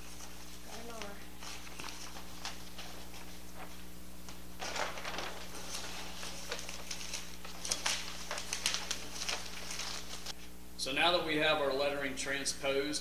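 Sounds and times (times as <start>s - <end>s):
paper sheets crinkling and rustling: 0.0s - 10.5s
steady low hum: 0.0s - 13.0s.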